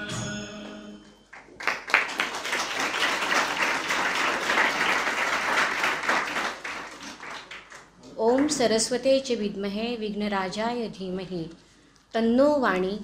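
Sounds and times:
audience applauding: 1.3 - 8.6.

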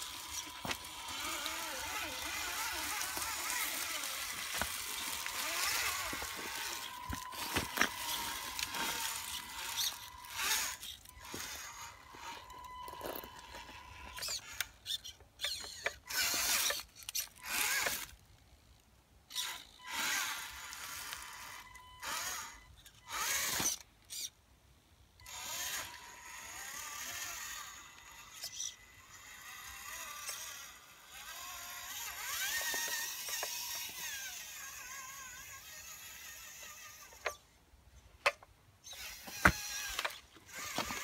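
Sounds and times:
thin steady high whine: 0.0 - 14.3
rc car electric motor whining: 0.0 - 18.2, 19.3 - 24.4, 25.2 - 37.5, 38.8 - 41.0.

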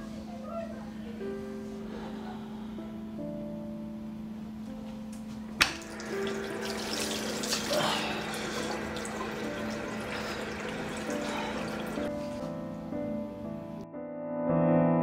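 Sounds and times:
water splashing on face: 5.6 - 12.1
tap running into sink: 5.6 - 12.3.

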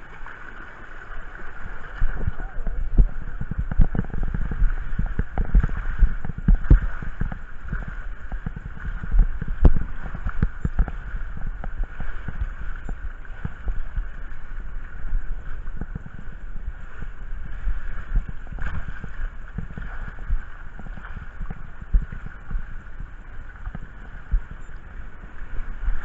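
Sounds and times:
water rushing down a slide: 0.0 - 11.0
low thumps and knocks: 2.1 - 14.3, 17.5 - 24.6.

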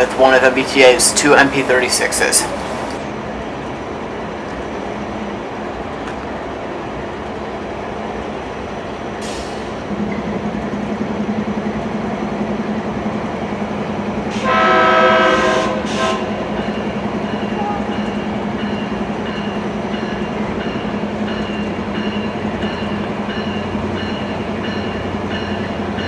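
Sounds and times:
diesel locomotive engine drone: 0.0 - 26.0
locomotive horn blast: 14.3 - 16.5.

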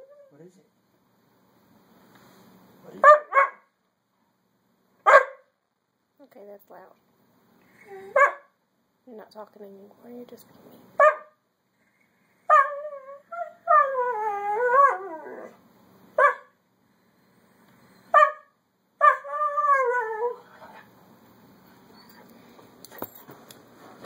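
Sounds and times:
dog barking: 3.0 - 3.7, 5.0 - 5.5, 8.1 - 8.5, 11.0 - 11.4, 16.2 - 16.6, 18.1 - 19.2
dog howling moan: 12.7 - 15.6, 19.2 - 20.8.

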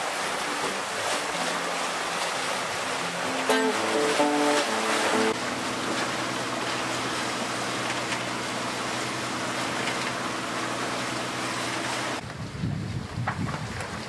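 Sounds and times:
hiss of wind and water: 0.0 - 14.0
wind buffeting microphone: 12.2 - 14.0.

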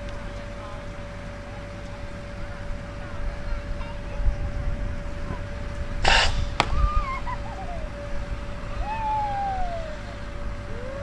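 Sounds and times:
distant voices calling out: 0.0 - 11.0
faint hum: 0.0 - 11.0
wind rumbling on microphone: 0.0 - 11.0
short hiss: 6.0 - 6.7.

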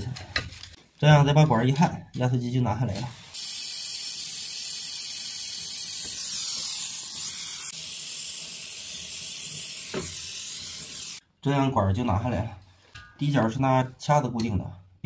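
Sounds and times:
torch flame hissing: 3.3 - 11.2.

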